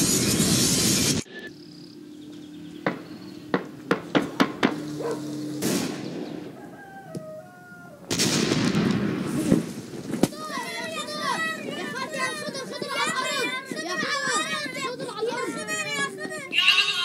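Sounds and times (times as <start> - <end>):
chicken calls: 6.2 - 8.1, 12.2 - 17.0
explosion blast: 8.1 - 9.9.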